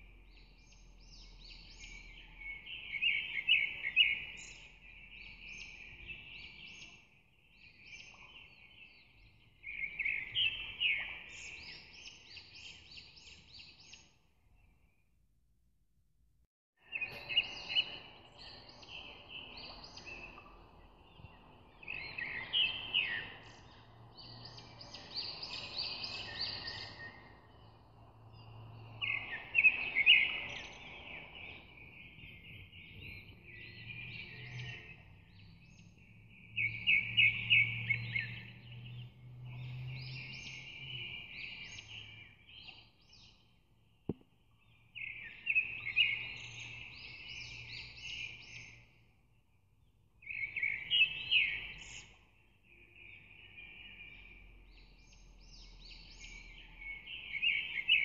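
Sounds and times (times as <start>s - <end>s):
birds chirping and singing: 0.3s - 14.1s, 16.9s - 38.6s, 50.2s - 58.0s.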